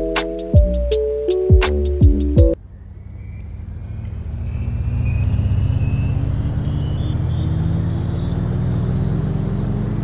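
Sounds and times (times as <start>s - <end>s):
vehicle engine accelerating: 1.8s - 10.0s
faint rising whine: 2.6s - 9.8s.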